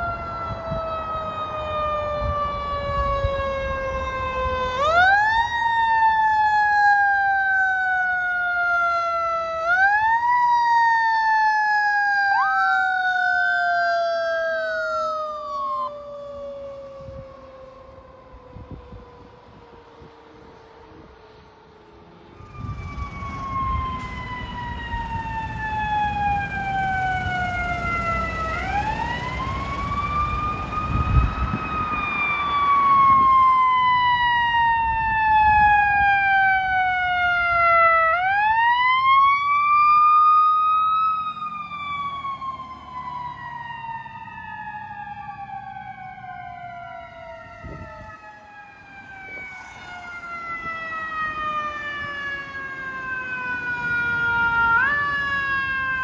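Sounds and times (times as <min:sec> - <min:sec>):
fire truck siren winding: 0:00.0 - 0:21.4, 0:22.3 - 0:56.0.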